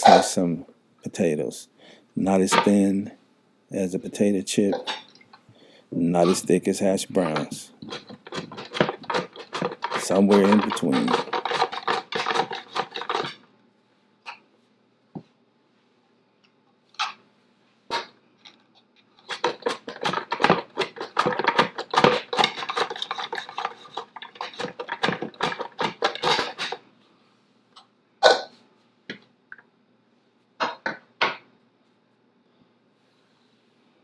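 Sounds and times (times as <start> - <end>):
potatoes sliced on mandoline: 7.2 - 13.4, 19.2 - 26.8.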